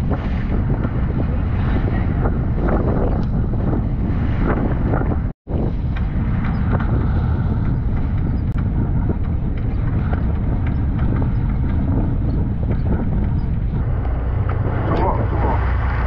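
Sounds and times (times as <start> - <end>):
boat engine running: 0.0 - 16.0
wind buffeting microphone: 0.0 - 16.0.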